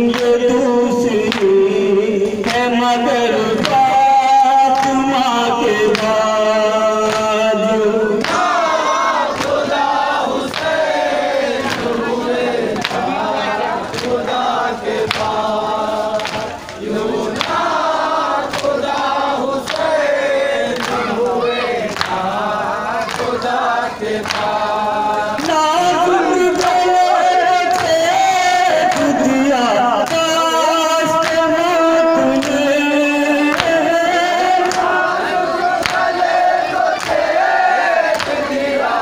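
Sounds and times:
men chanting in unison: 0.0 - 39.0.

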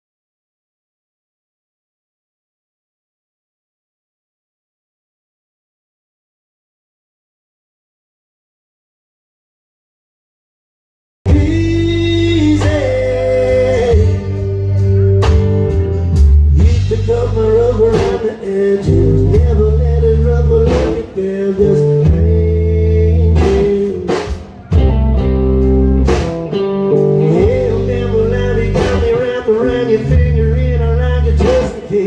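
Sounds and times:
bending lead guitar line: 11.3 - 32.0
drum kit steady beat: 11.3 - 32.0
live rock band playing: 11.3 - 32.0.

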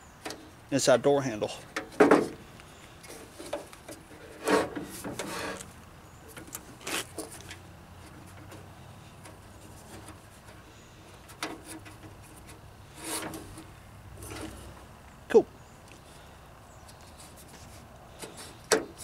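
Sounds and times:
rubbing scrapes: 3.0 - 5.7, 11.6 - 14.7.

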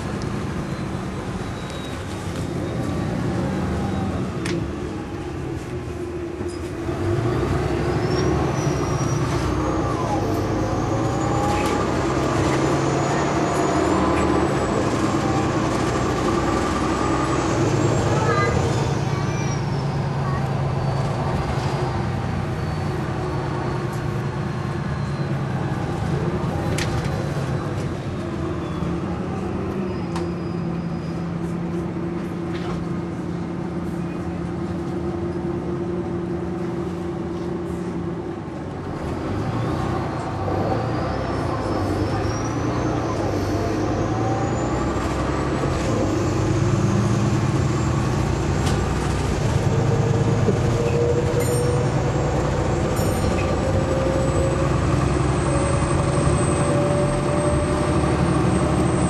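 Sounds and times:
bus diesel engine drone: 0.0 - 59.0.

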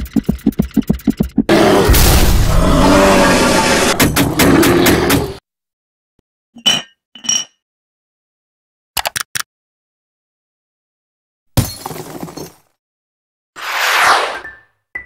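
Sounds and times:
quick run of clicks: 0.0 - 1.5
cartoon crash with clattering: 1.9 - 2.6.

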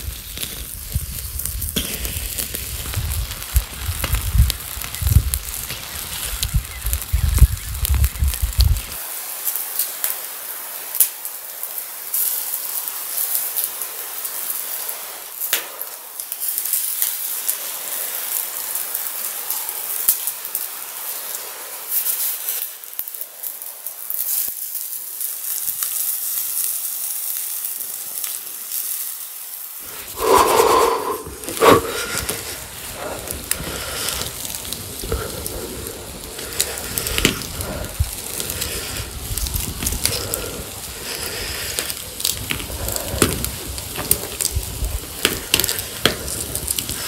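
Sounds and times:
burning wood crackling: 0.0 - 47.0
fish sizzling on a grill: 0.0 - 47.0.

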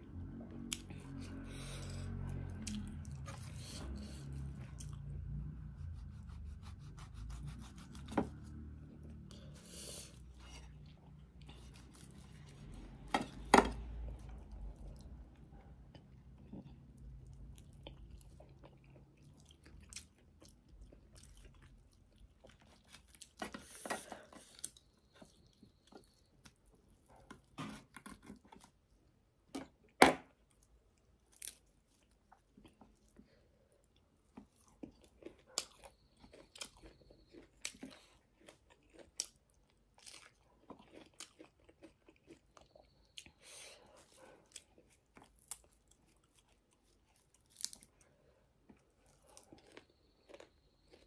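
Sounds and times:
chewing and mouth clicks: 2.0 - 5.5, 13.8 - 23.4, 30.5 - 51.0.

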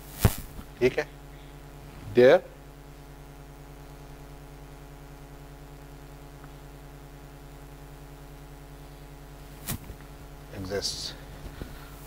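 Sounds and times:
fluttering electrical hum: 0.0 - 12.0.

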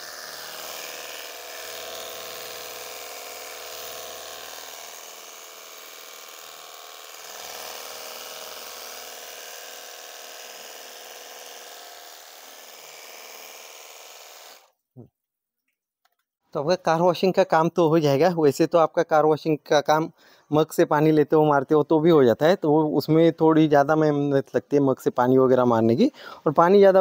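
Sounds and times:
electric pump motor whining: 0.0 - 14.8.

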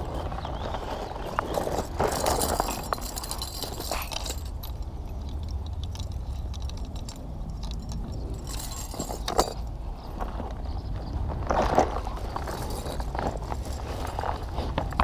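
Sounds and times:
wind rumble on microphone: 0.0 - 15.0
metal clips clinking and rattling: 1.6 - 9.7
rustling: 11.2 - 15.0.

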